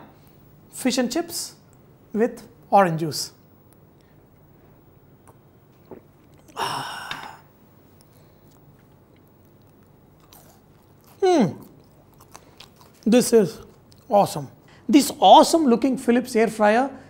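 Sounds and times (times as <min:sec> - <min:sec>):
faint mouth sounds: 0:05.2 - 0:14.1
man humming mmm: 0:05.9 - 0:07.5.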